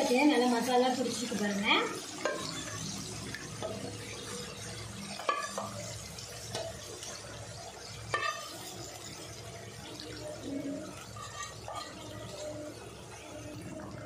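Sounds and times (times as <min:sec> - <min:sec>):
gravy sizzling: 0:00.0 - 0:14.0
spoon knocking against pan: 0:05.2 - 0:05.8.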